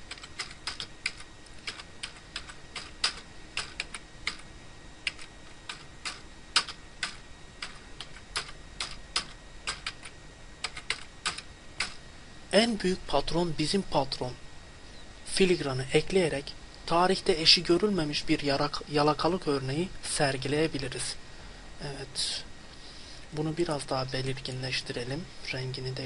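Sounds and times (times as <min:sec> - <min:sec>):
keyboard typing: 0:00.0 - 0:12.0.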